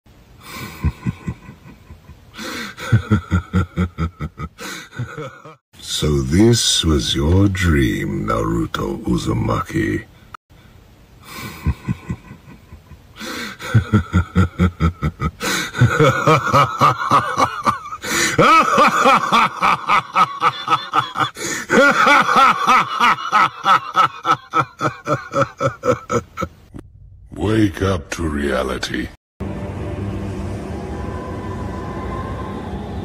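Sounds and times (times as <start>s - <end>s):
person laughing: 0.4s - 5.6s, 11.2s - 26.6s.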